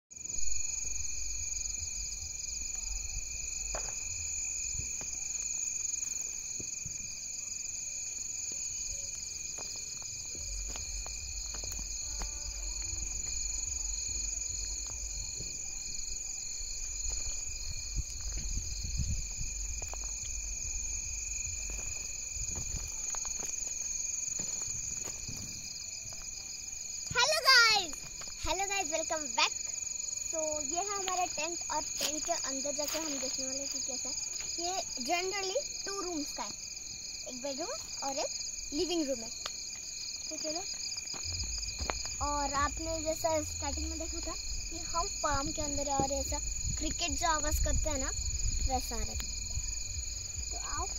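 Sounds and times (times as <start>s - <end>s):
crickets trilling: 0.1s - 50.9s
low microphone rumble: 10.4s - 22.9s, 41.2s - 50.9s.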